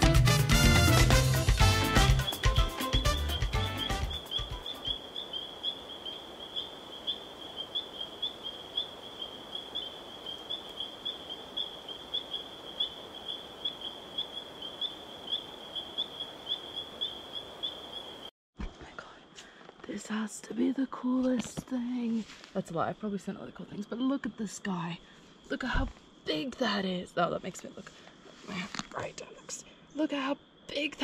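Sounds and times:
salsa music: 0:00.0 - 0:04.6.

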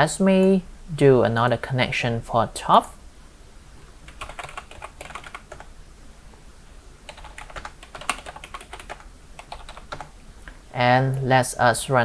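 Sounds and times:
typing on a keyboard: 0:04.1 - 0:05.7, 0:07.1 - 0:10.1.

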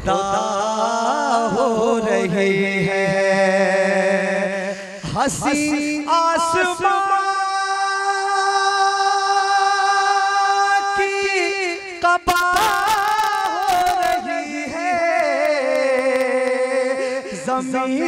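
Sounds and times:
man singing into a microphone: 0:00.0 - 0:18.0
sharp clicks: 0:12.3 - 0:14.2, 0:15.1 - 0:16.6.

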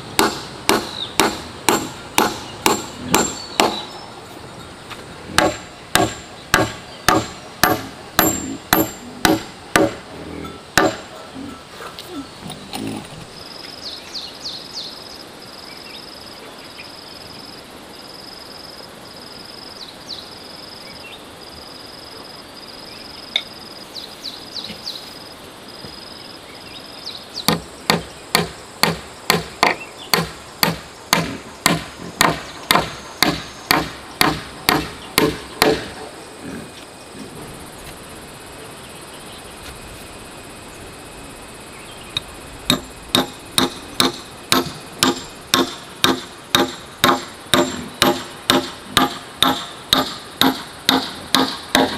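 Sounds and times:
hammer striking wood: 0:00.2 - 0:04.0, 0:05.3 - 0:10.1, 0:10.8 - 0:11.1, 0:27.5 - 0:35.9, 0:42.7 - 0:51.9
insect pulsing high call: 0:00.4 - 0:51.9.

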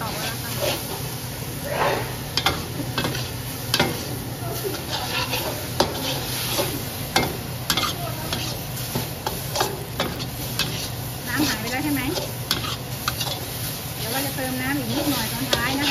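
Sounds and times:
frying sizzle: 0:00.0 - 0:15.9
metal ladle scraping wok: 0:04.7 - 0:15.9.

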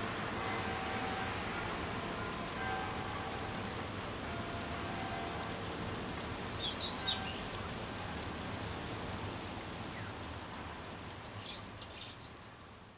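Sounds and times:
rain-like hiss: 0:00.0 - 0:12.9.

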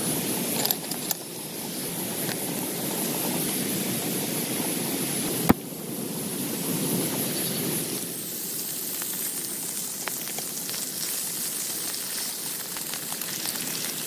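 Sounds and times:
heavy rain on a tent: 0:00.0 - 0:14.0.

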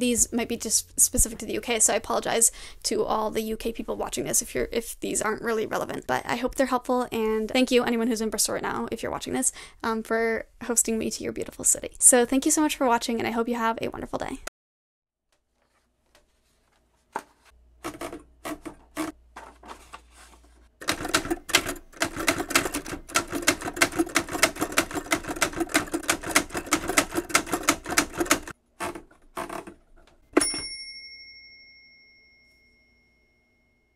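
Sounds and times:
typewriter keystrokes: 0:20.8 - 0:28.5
typewriter bell ding: 0:30.3 - 0:33.8.

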